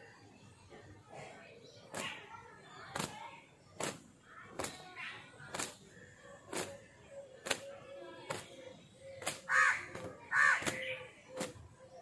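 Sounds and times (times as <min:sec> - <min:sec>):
bird calling loudly: 0:09.2 - 0:11.5.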